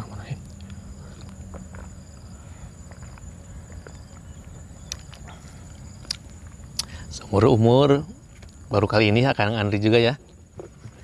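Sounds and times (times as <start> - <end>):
high insect drone: 0.0 - 11.0
low outdoor rumble: 0.0 - 11.0.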